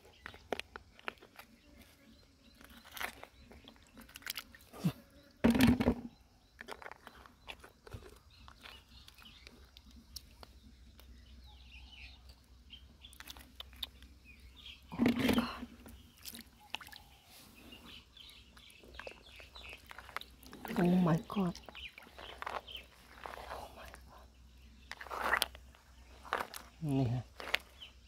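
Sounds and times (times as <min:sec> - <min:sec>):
hands digging wet crunches: 0:02.6 - 0:05.0, 0:13.0 - 0:14.1, 0:16.0 - 0:17.2, 0:18.5 - 0:24.1, 0:24.9 - 0:28.0
faint bird chirps: 0:06.0 - 0:28.0.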